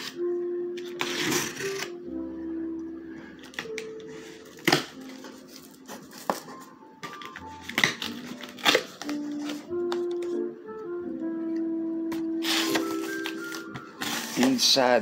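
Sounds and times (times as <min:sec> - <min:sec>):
background music sustained notes: 0:00.0 - 0:15.0
knife slicing packing tape: 0:00.8 - 0:02.0, 0:07.6 - 0:09.6, 0:12.4 - 0:14.5.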